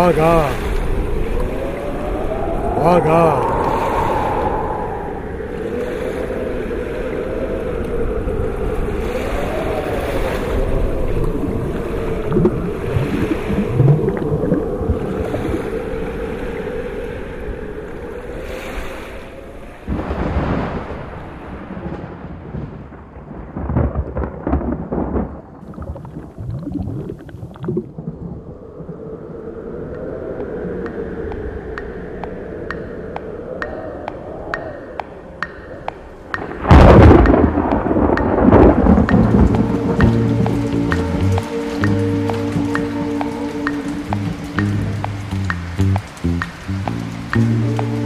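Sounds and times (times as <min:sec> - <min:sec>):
sea or underwater noise: 0:00.0 - 0:48.0
wavering drone tone: 0:38.8 - 0:48.0
short watery bursts: 0:38.9 - 0:48.0.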